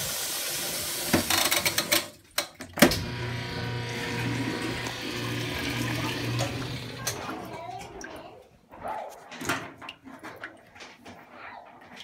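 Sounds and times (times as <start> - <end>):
washing machine motor hum: 2.8 - 7.9
rushing water: 3.8 - 8.3.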